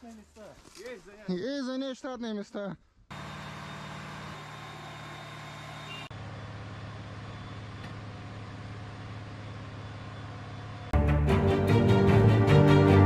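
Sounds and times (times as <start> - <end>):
vehicle engine humming: 3.1 - 11.5.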